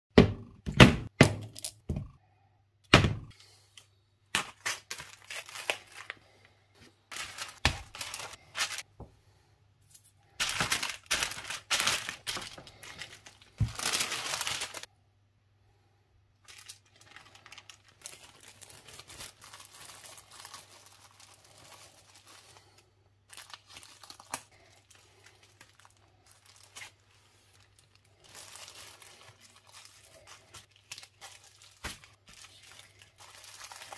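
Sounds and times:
plastic bags crinkling: 4.4s - 6.4s, 7.1s - 8.9s, 10.4s - 14.9s, 16.4s - 33.9s.

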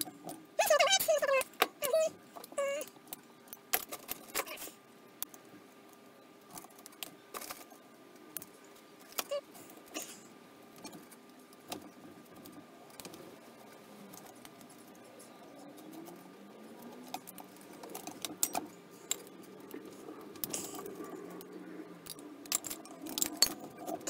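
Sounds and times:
small metal parts clicking: 0.0s - 5.4s, 16.8s - 24.0s.

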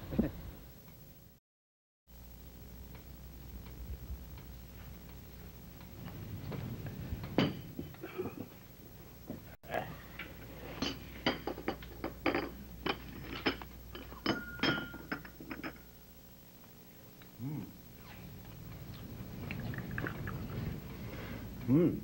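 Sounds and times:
teacups and saucers clinking: 10.8s - 15.8s, 19.4s - 20.8s.

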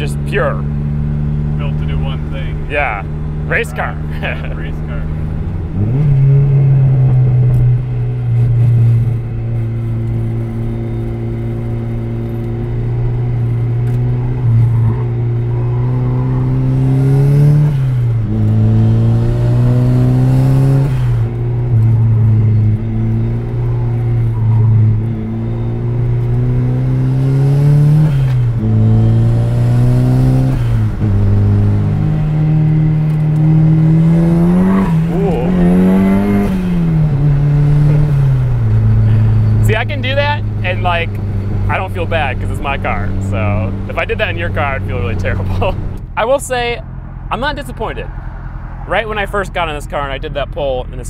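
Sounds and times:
car engine under hard driving: 0.0s - 51.0s.

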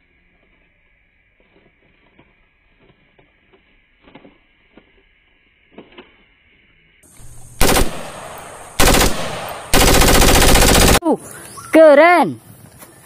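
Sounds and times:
automatic rifle bursts: 7.2s - 11.0s.

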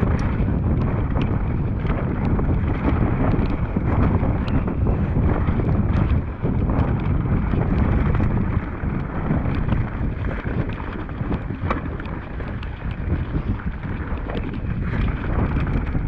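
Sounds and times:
bike clicks and rattles: 0.0s - 16.0s
wind buffeting microphone: 0.0s - 16.0s.

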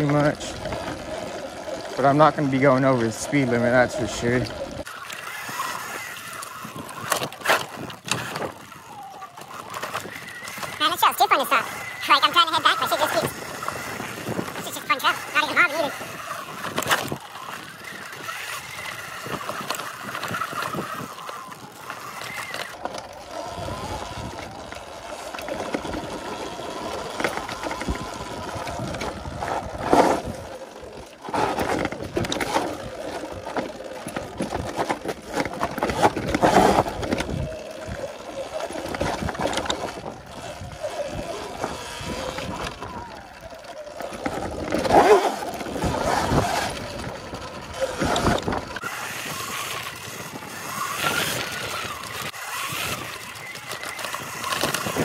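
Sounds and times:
bike rattling over bumps: 0.0s - 55.0s
electric dirt bike riding: 0.0s - 55.0s.

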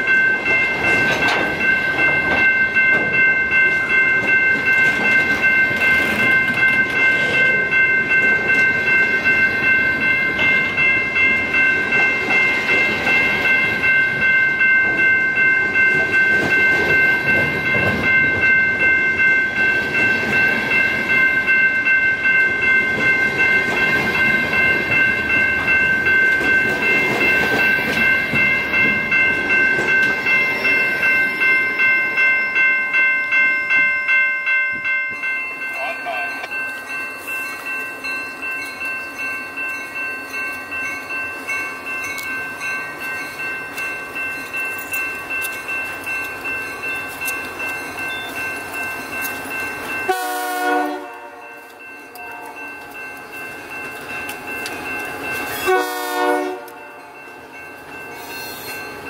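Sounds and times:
train wheels clacking on rails: 0.0s - 31.9s
crossing bell ringing: 0.0s - 59.0s.

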